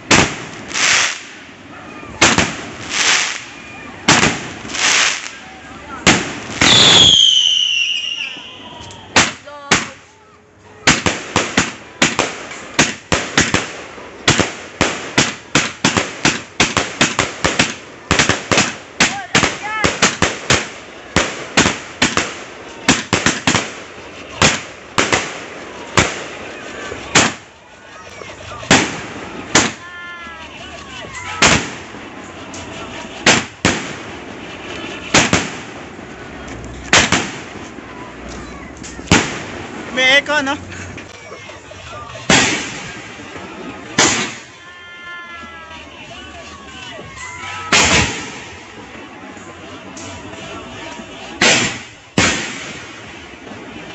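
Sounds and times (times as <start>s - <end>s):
firework bang: 0.0s - 1.5s, 2.1s - 5.4s, 27.1s - 27.5s, 28.6s - 29.8s, 31.1s - 36.1s, 36.9s - 37.8s, 39.0s - 40.0s, 42.2s - 44.6s, 47.6s - 48.7s, 51.4s - 53.7s
firework bangs: 0.0s - 10.1s, 10.7s - 53.9s
firework hiss: 0.0s - 45.7s, 46.5s - 53.9s
sharp firework shell bursts: 32.6s - 35.8s, 44.0s - 44.5s, 47.6s - 48.6s.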